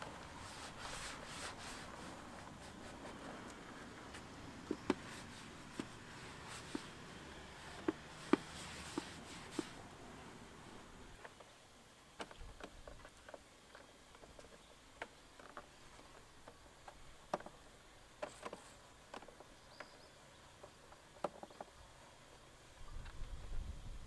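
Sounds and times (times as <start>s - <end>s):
cloth wiping plastic covers: 0.0s - 11.0s.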